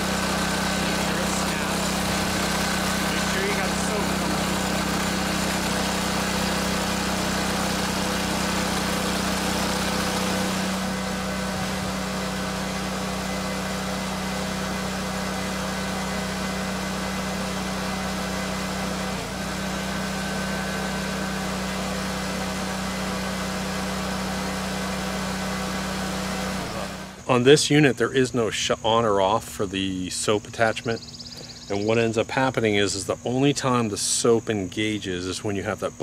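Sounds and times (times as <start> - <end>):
water spraying hiss: 0.0 - 14.4
pressure washer engine running: 0.0 - 27.3.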